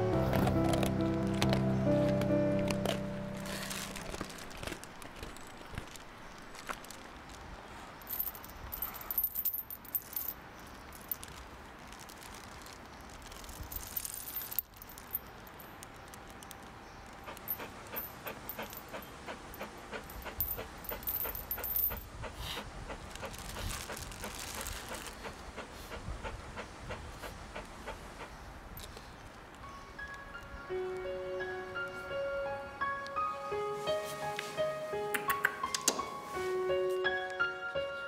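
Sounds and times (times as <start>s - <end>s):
metal chain links clinking: 3.6s - 6.1s, 8.0s - 11.4s, 13.2s - 15.9s, 17.4s - 19.0s, 20.1s - 22.1s.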